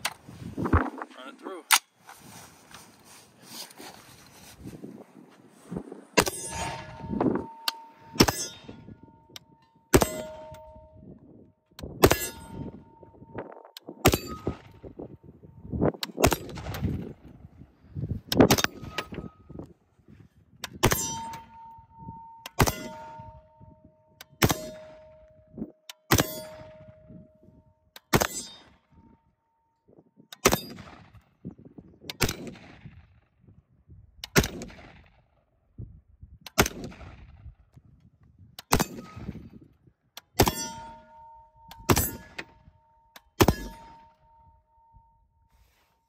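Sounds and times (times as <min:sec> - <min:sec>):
steel target ringing: 0:06.2 - 0:11.2, 0:12.0 - 0:13.4, 0:14.0 - 0:14.9, 0:20.8 - 0:23.8, 0:40.4 - 0:44.6
rifle gunshots: 0:09.9 - 0:10.5, 0:16.1 - 0:17.1.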